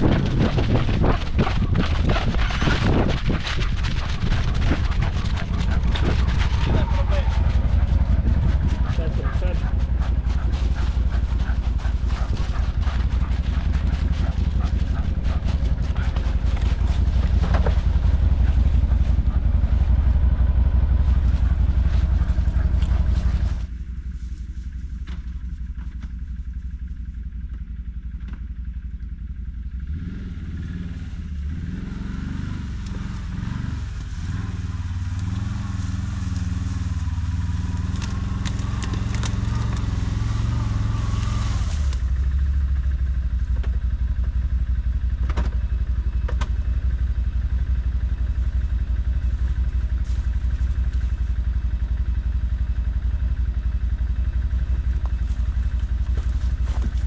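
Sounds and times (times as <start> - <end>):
rattling and clatter: 0.0 - 23.7
atv engine running: 0.0 - 57.0
distant atv approaching: 0.0 - 57.0.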